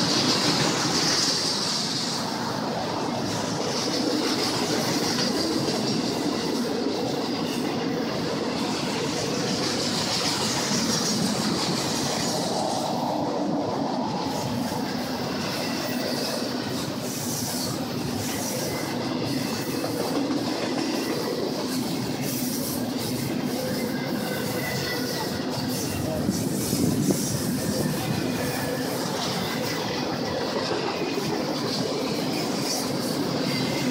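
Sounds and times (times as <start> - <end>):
freight train wheels rumbling: 0.0 - 33.9
faint wheel squeal: 20.9 - 31.3, 31.9 - 33.9.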